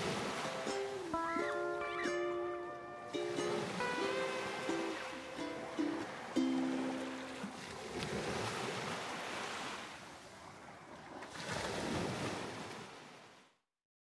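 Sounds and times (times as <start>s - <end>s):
sea surf washing up a beach: 0.0s - 13.4s.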